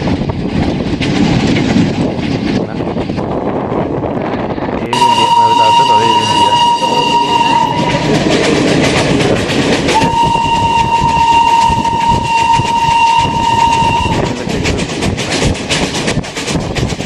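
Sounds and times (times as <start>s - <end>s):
moving train rattling: 0.0s - 17.0s
steam locomotive whistle: 4.9s - 8.5s, 9.9s - 14.5s.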